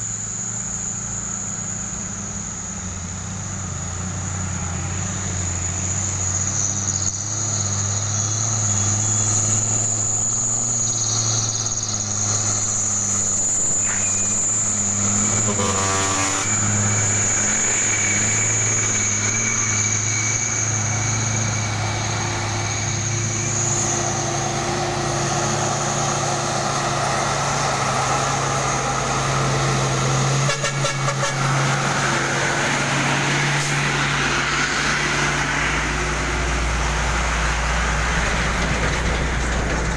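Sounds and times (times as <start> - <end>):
truck engines labouring: 0.0 - 39.9
high insect buzz: 5.7 - 33.8.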